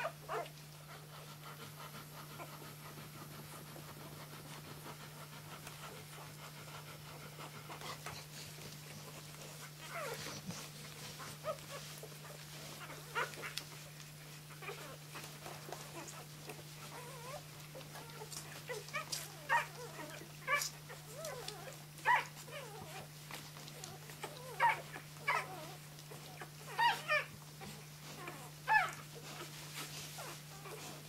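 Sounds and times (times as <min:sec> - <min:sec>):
puppies squeaking and whimpering: 0:09.1 - 0:13.9, 0:14.6 - 0:31.0.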